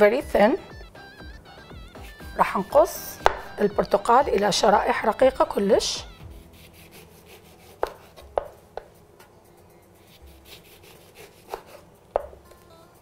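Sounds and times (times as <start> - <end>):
knife knocking on cutting board: 3.2 - 3.5, 7.8 - 8.9, 12.2 - 12.4.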